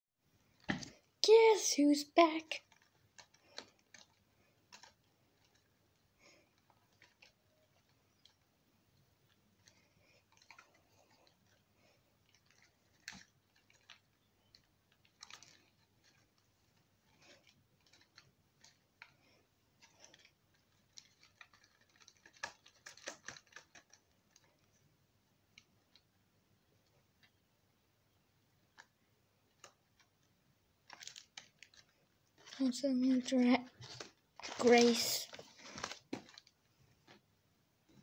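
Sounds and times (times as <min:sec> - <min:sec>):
plastic packet crinkling: 0:02.3 - 0:08.5, 0:09.2 - 0:24.7, 0:30.8 - 0:37.2.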